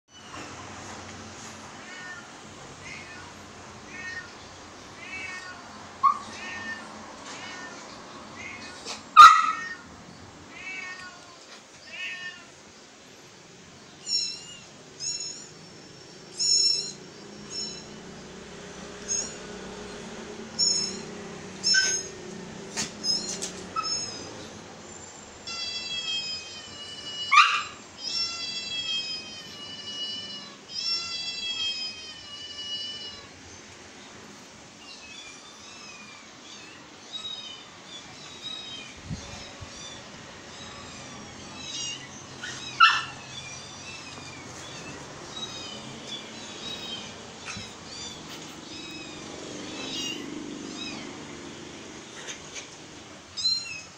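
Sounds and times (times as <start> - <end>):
cat meows from phone speaker: 25.4 - 33.3.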